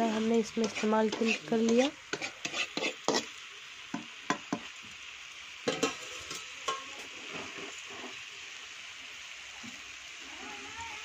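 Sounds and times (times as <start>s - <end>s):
spatula scraping a pan: 0.0s - 3.4s, 5.7s - 8.3s
food sizzling: 0.0s - 11.0s.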